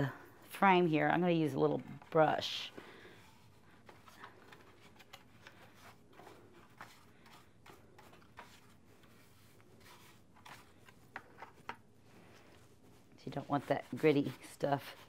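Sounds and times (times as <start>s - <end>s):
bristle brush sweeping grit: 6.6s - 10.8s, 12.6s - 15.0s.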